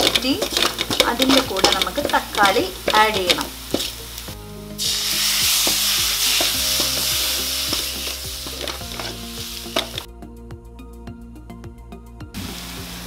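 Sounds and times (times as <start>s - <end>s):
food sizzling in metal pan: 0.0s - 10.1s, 12.4s - 13.0s
spatula scraping pan: 0.0s - 10.1s.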